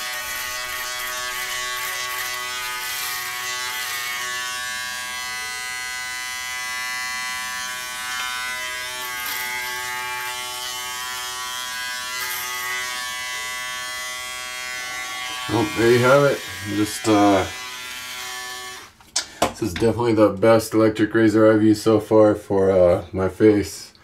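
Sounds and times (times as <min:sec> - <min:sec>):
electric shaver buzzing: 0:00.0 - 0:19.0.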